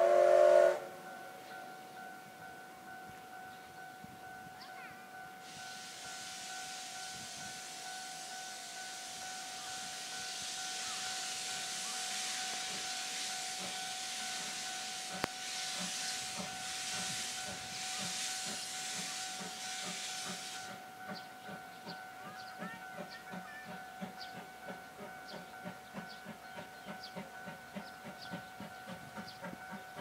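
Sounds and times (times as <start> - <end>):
steam locomotive exhaust chuffs: 0.0 - 1.6, 5.2 - 30.0
level-crossing alarm ringing: 1.0 - 30.0
steam hissing: 5.4 - 22.0.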